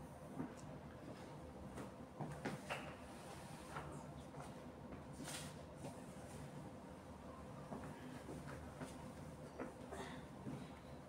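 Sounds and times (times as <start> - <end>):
faint footsteps and knocks: 7.7 - 10.8.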